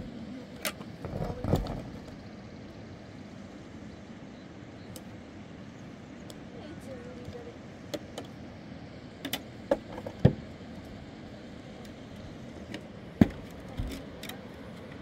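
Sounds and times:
steady background hiss: 0.0 - 15.0.

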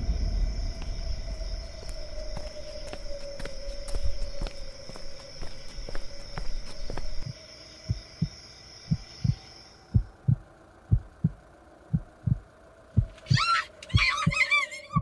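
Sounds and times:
steady high tone: 0.0 - 8.3
heartbeat thumps: 0.0 - 13.2.

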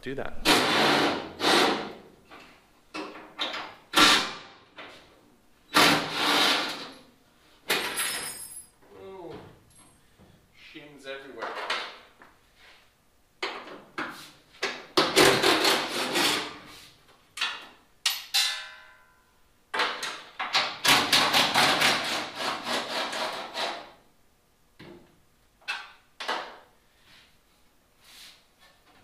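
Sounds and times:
tool clinks: 7.8 - 8.8
short metallic ring: 8.0 - 8.8.

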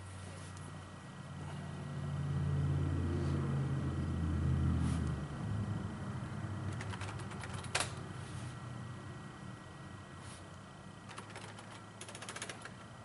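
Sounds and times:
low droning hum: 0.0 - 13.0
computer keyboard keys clicking: 6.7 - 8.0, 11.1 - 12.8.

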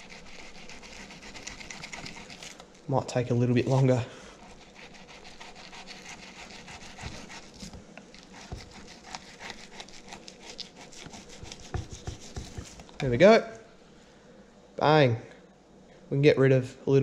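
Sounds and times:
knife scraping fish skin: 0.0 - 2.7, 3.6 - 12.9.

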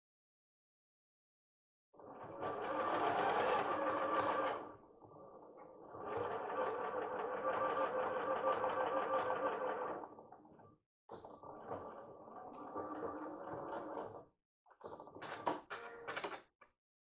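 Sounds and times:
sewing machine stitching: 2.0 - 4.8, 5.8 - 10.2, 11.2 - 14.3.

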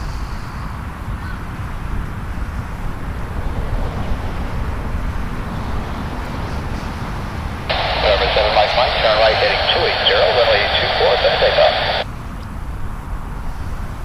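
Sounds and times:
distant jet engine rumble: 0.5 - 12.0
radio transmission: 7.7 - 12.0.

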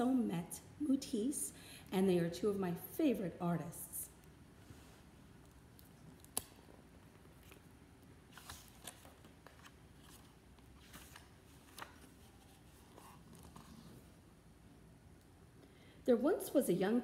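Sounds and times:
book clicks: 5.8 - 6.8, 8.3 - 12.1
paper rustling: 8.3 - 14.1.

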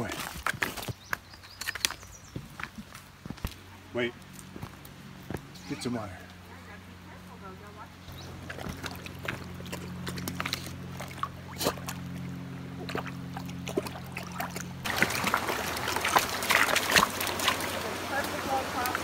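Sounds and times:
stream trickling: 4.3 - 19.0
dog lapping and splashing water: 8.3 - 19.0
rush of flowing water: 12.8 - 19.0.

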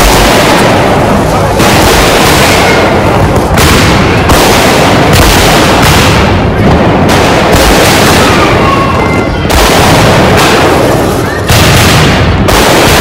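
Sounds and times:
firecrackers bursting: 0.0 - 13.0
high whistles: 11.2 - 11.5.

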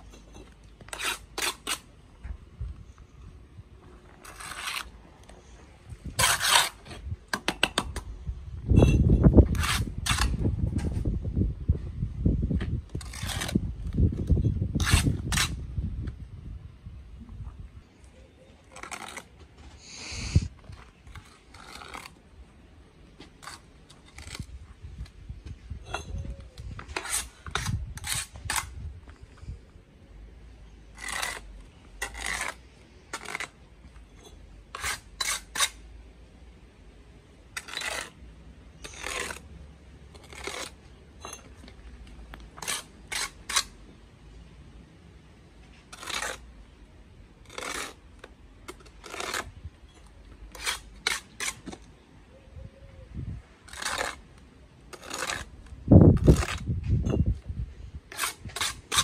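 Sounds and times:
trowel scraping mortar: 0.0 - 2.3, 3.8 - 8.0, 8.8 - 11.0, 12.9 - 15.7, 18.4 - 25.2, 25.8 - 28.8, 30.6 - 35.9, 37.5 - 43.9, 45.7 - 46.7, 47.4 - 51.9, 53.6 - 57.4, 58.0 - 59.0
trowel clinking on block: 40.5 - 41.8.

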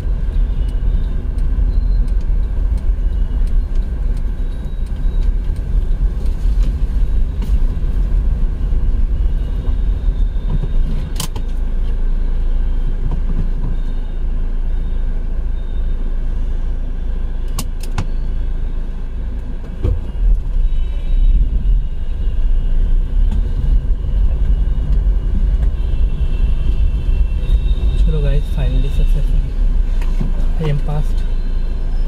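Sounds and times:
car engine and road rumble: 0.0 - 32.0.

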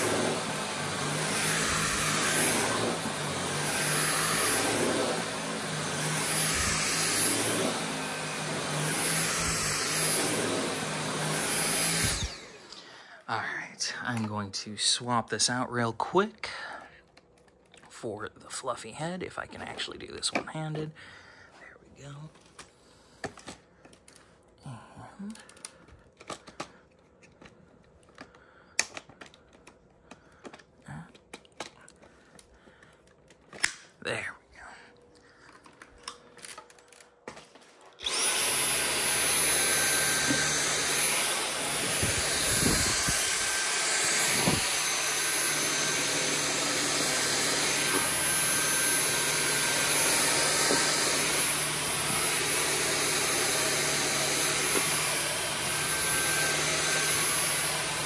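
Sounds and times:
vacuum cleaner running: 0.0 - 13.2, 35.5 - 58.0.

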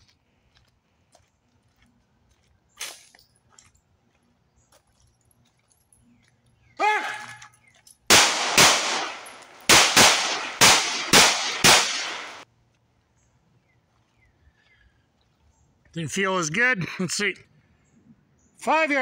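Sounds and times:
pistol shots with ringing echo: 8.1 - 12.4.

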